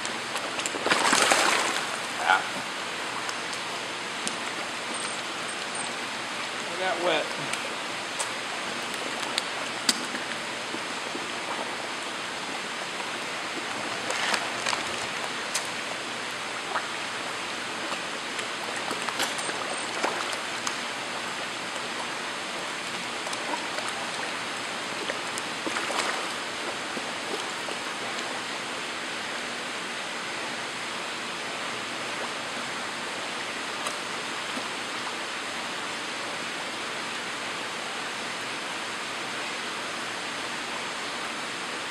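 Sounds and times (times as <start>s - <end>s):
rushing pond water: 0.0s - 41.9s
fish splashing: 0.2s - 6.6s, 7.3s - 30.0s.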